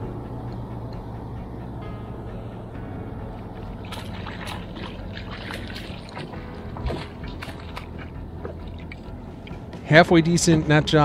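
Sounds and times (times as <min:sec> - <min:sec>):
fish splashing water: 0:03.6 - 0:09.6.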